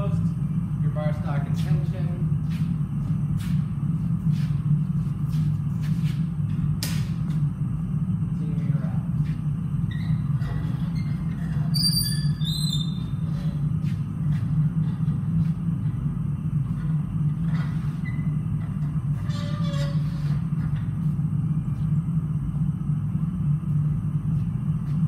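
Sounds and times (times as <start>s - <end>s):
low hum of shop equipment: 0.0s - 25.0s
metal squeaks and clinks: 9.9s - 13.3s, 19.2s - 20.2s.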